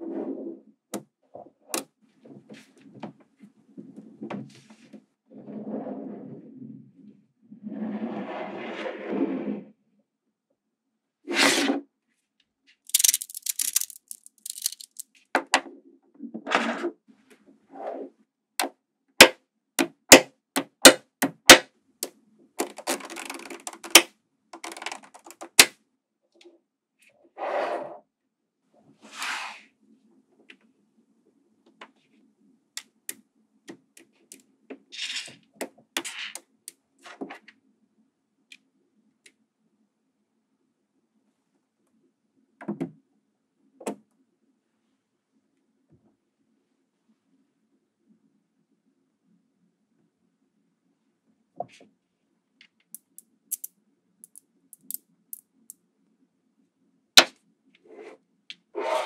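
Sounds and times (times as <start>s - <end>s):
magnetic balls clicking: 12.9s - 15.0s, 22.6s - 25.7s, 52.9s - 55.4s.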